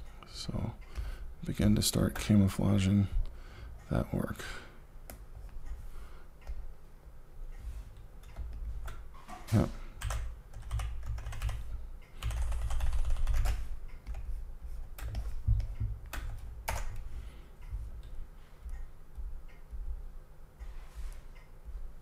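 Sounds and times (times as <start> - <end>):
keyboard clicking: 10.0 - 14.3, 14.9 - 17.1.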